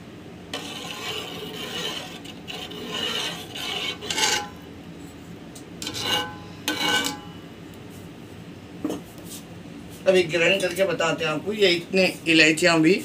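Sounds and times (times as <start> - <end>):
spoon scraping a metal pot: 0.6 - 4.7, 5.8 - 7.3.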